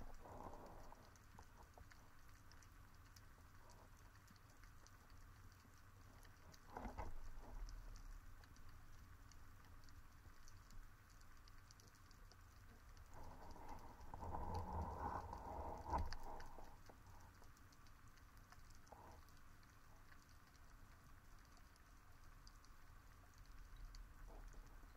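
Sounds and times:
low underwater rumble: 0.0s - 4.0s, 5.7s - 24.9s
small crackling clicks underwater: 0.0s - 24.9s.

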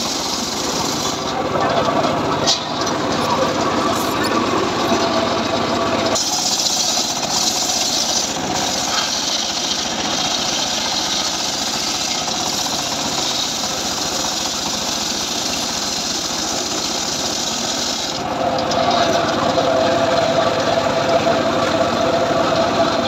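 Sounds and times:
saw blade hissing through log: 0.0s - 1.3s, 6.1s - 18.2s
engine pulsing: 0.0s - 15.6s.

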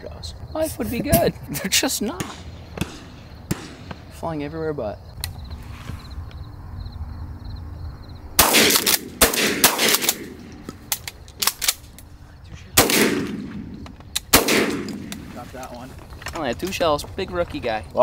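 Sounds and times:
shotgun blasts: 2.2s - 4.2s, 8.4s - 11.0s, 12.8s - 15.6s
sharp light cracks: 8.4s - 12.1s, 12.8s - 16.8s.

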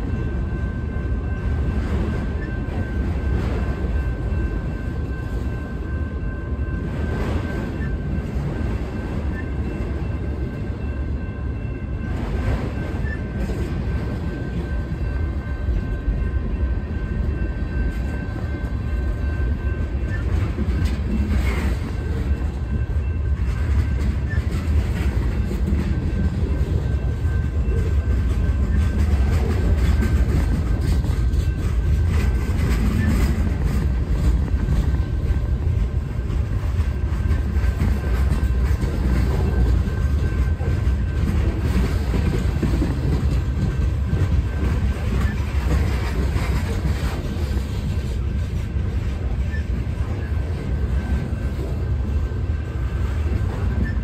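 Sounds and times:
freight train rumbling on rails: 0.0s - 54.0s.

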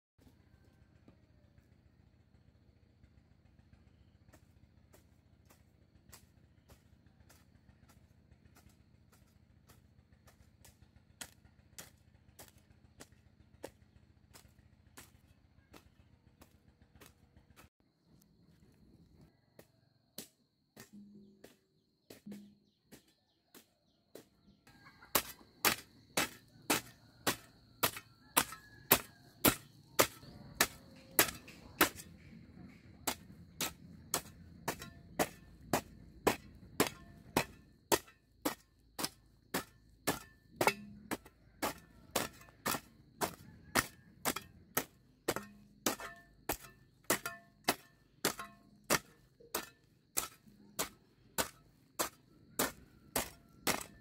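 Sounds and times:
hoe chopping into dry soil: 25.2s - 54.0s.

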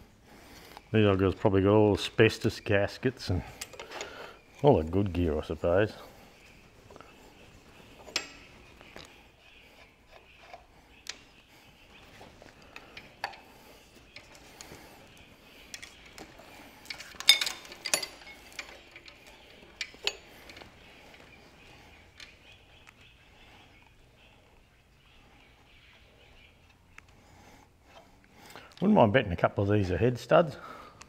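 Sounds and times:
spanners clinking against metal: 3.4s - 4.9s, 8.0s - 8.5s, 15.7s - 21.3s.

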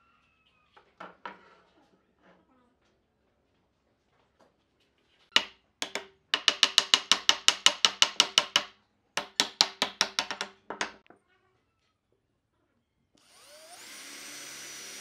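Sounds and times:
wooden block knocking wood: 5.3s - 11.2s.

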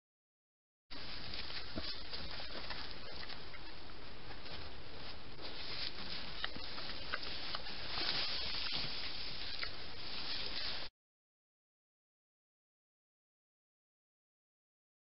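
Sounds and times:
boar rustling in brush: 0.9s - 10.9s.

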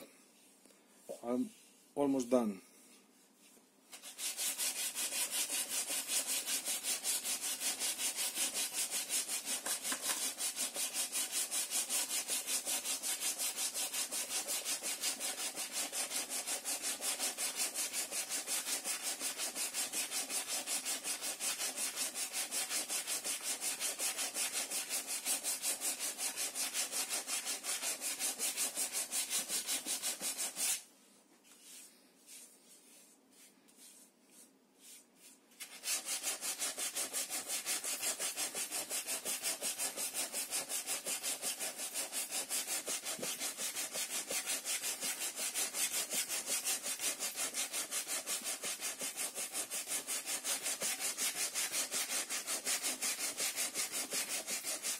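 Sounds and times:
sandpaper rubbing on wood: 3.9s - 30.9s, 31.6s - 54.9s
hand rustling over surface: 31.4s - 35.8s.

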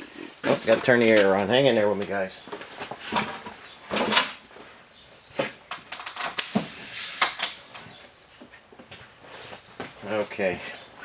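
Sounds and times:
tools clicking and knocking: 5.7s - 6.5s
compressed air hissing: 6.4s - 7.6s.

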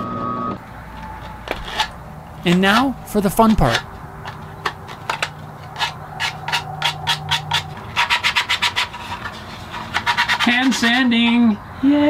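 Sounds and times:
sandpaper rubbing on wood: 5.8s - 11.2s.

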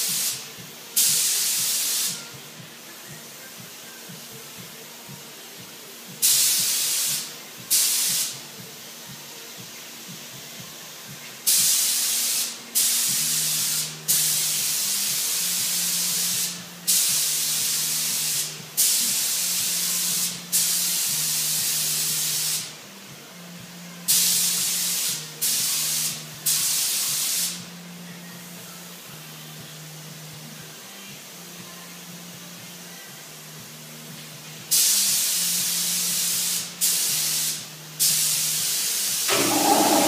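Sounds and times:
spray gun hissing bursts: 0.0s - 2.3s, 6.2s - 8.4s, 11.4s - 22.8s, 24.1s - 27.6s, 34.7s - 40.0s.

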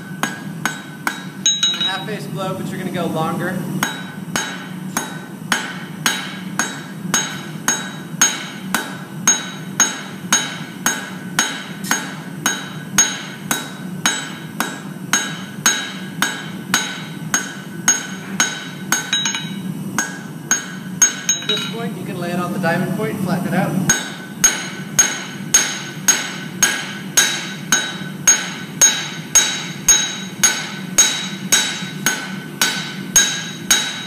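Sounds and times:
hammer striking hot steel on anvil: 0.0s - 2.1s, 3.8s - 21.9s, 23.9s - 34.0s.

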